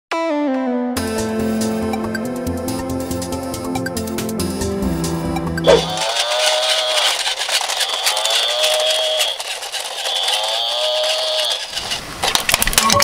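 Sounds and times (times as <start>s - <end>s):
toy electronic moo: 5.6s - 11.7s.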